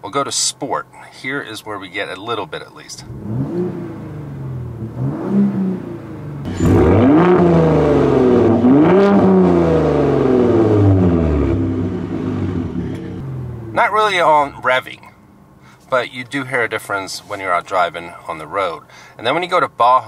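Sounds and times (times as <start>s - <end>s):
truck engine revving: 3.1s - 13.8s.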